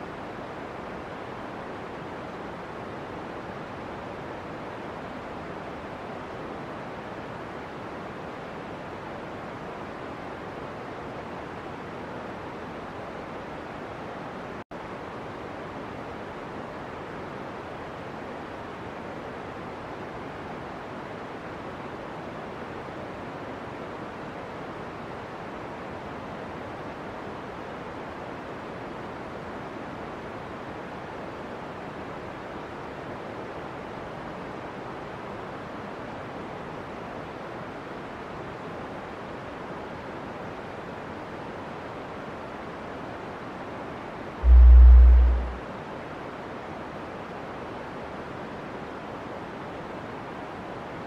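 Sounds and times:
steady rushing noise: 44.4 - 45.7.

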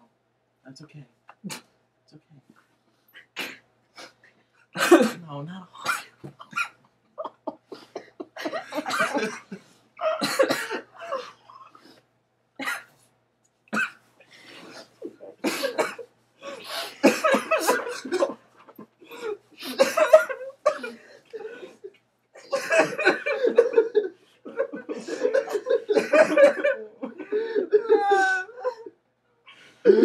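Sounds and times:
young people sobbing and wailing: 6.3 - 11.8, 16.4 - 29.0.

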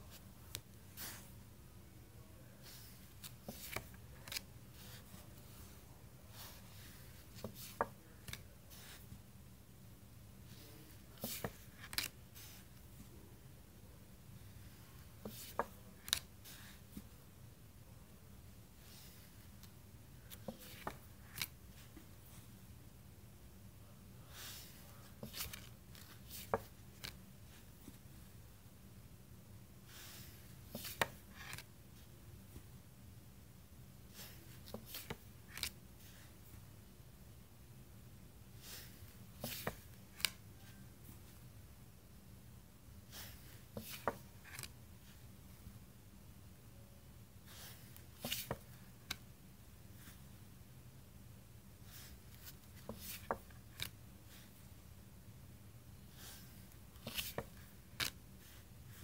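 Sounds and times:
cards sliding against cards: 2.6 - 5.1, 11.1 - 12.7, 20.3 - 21.6, 24.3 - 27.2, 29.9 - 31.7, 34.1 - 36.2, 38.6 - 40.7, 43.1 - 44.7, 47.5 - 49.2, 51.9 - 54.5, 56.2 - 58.2.

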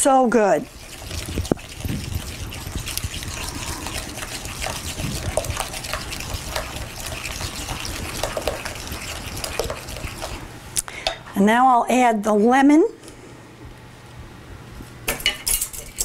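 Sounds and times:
wet sloshing of stirring: 0.4 - 10.7.

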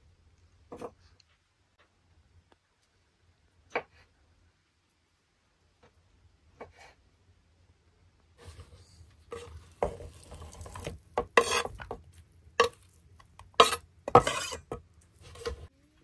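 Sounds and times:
knife scraping wooden board: 9.3 - 12.0, 13.6 - 15.6.

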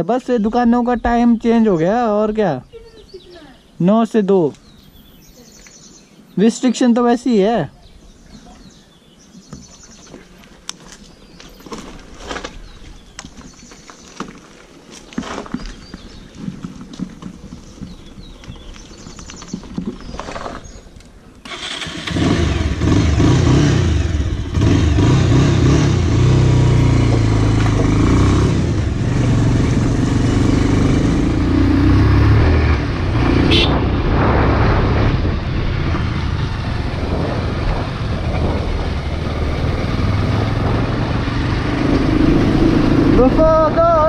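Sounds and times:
motorcycle engine: 21.4 - 44.0.

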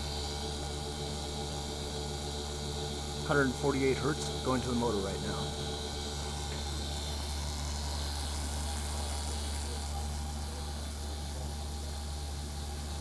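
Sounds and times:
blender running: 0.0 - 13.0.

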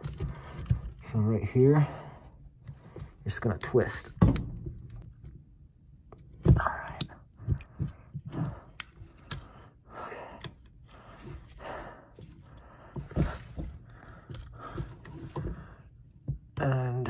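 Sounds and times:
dull thumps: 12.8 - 16.6.

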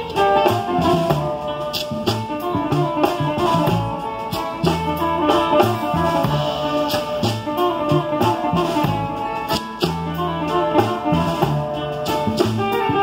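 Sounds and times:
drum kit beat: 0.0 - 13.0
guitar: 0.0 - 13.0
live band playing: 0.0 - 13.0.

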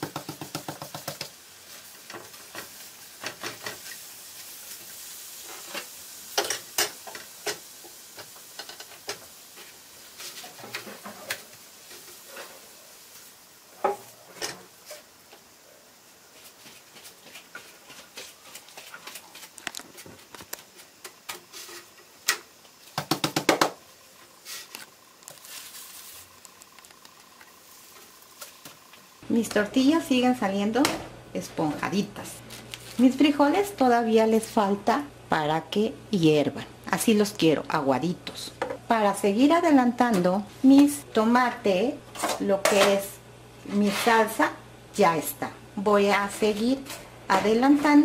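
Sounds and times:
tortillas sizzling on griddle: 0.0 - 34.6.

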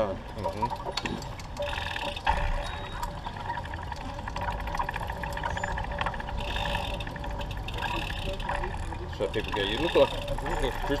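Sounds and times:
faint ticking: 0.0 - 11.0
tyre and drivetrain whir: 5.4 - 11.0.

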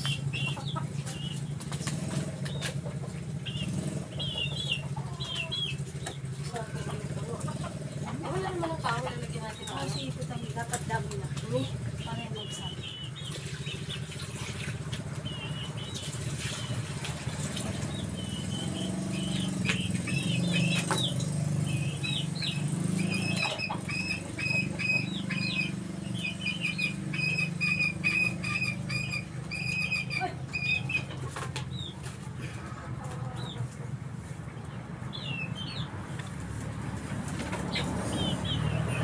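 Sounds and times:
high bird chirps: 18.0 - 32.0.

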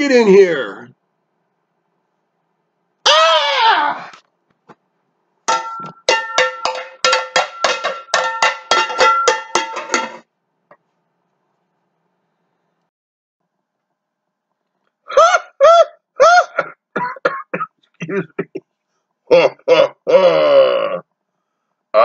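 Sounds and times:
cowbell-like metallic strikes: 5.5 - 10.2.

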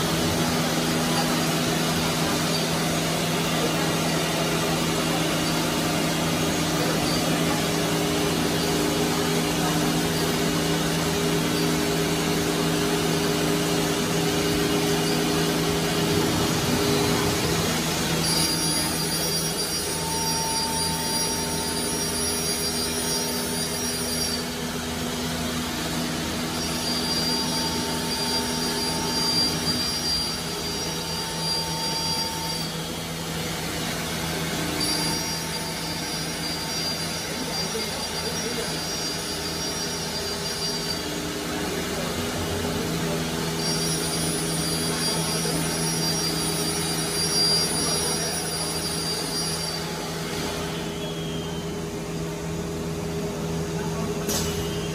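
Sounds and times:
router low hum: 0.0 - 21.6
high spindle whine: 0.0 - 54.9.

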